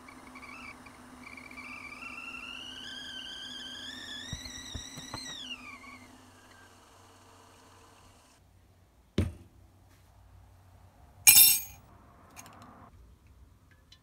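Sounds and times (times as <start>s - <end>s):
kettle whistling: 0.0s - 8.3s.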